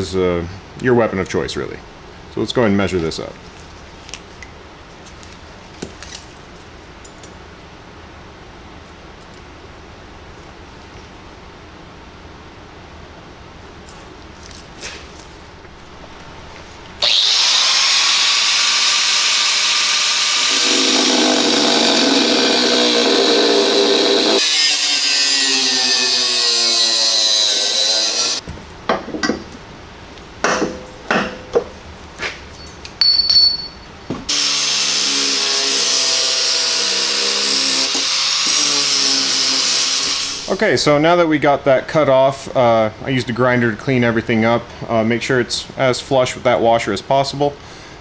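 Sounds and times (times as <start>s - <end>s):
angle grinder cutting steel: 17.0s - 28.4s, 34.3s - 40.5s.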